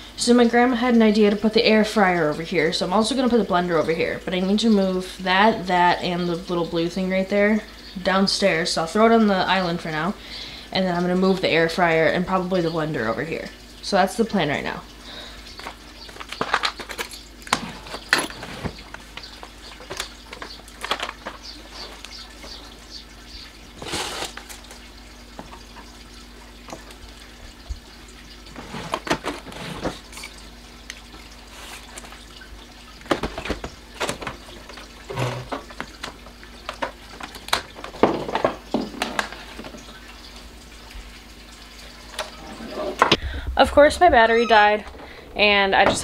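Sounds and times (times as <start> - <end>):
plastic containers clattering on countertop: 33.1 - 39.8.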